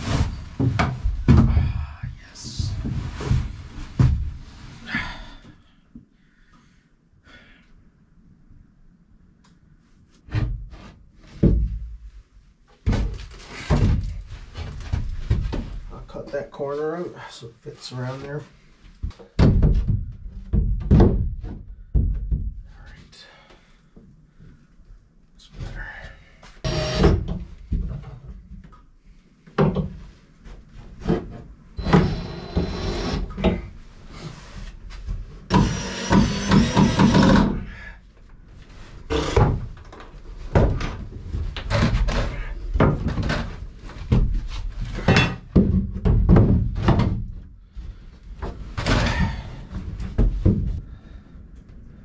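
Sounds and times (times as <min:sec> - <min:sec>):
cordless drill driving screws: 0:26.7 - 0:27.2, 0:31.8 - 0:33.4, 0:35.5 - 0:37.5.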